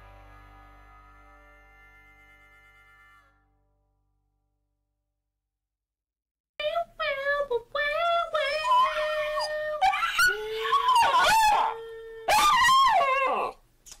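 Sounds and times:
woman howling: 8.3s - 13.6s
dog howling: 8.4s - 13.6s.

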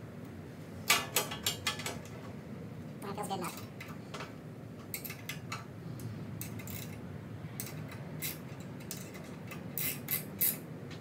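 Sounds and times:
small metal parts clinking: 6.4s - 7.0s, 7.6s - 10.6s.

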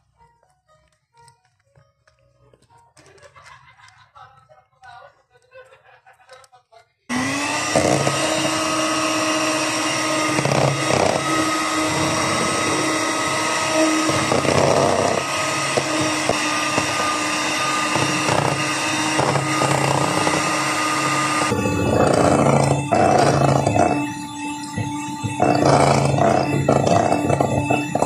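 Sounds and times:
electric hand mixer whirring: 7.1s - 28.0s.

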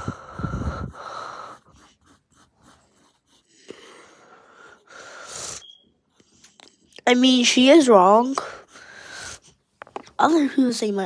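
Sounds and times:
pencil scratching on paper: 0.0s - 4.3s.

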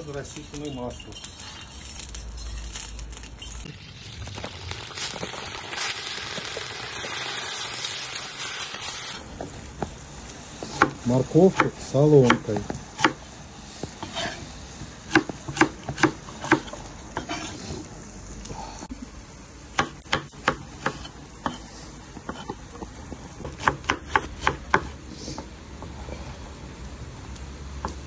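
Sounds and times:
knife chopping on wooden board: 12.3s - 13.2s, 15.1s - 17.5s, 19.8s - 21.6s, 23.4s - 25.0s.

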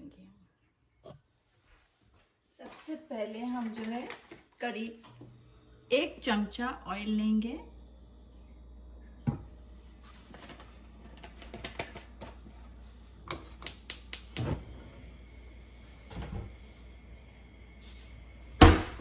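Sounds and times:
gas igniter clicking: 13.6s - 14.5s.

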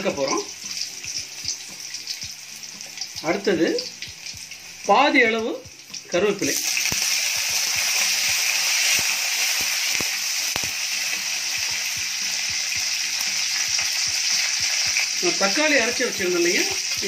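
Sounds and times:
leaves sizzling in hot oil: 0.0s - 17.0s
sharp pops and clicks: 6.8s - 11.0s.

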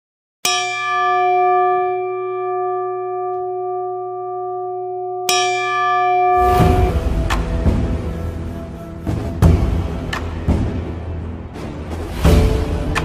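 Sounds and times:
metal bell ringing: 0.5s - 7.0s.

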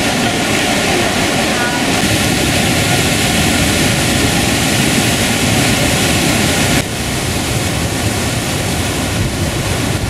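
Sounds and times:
whitewater rushing over waterfall: 0.0s - 10.0s.

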